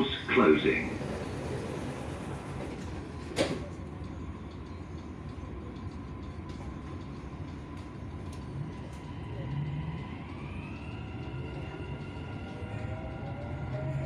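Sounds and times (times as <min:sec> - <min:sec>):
train rumbling: 0:00.0 - 0:14.0
traction motor whine: 0:08.2 - 0:14.0.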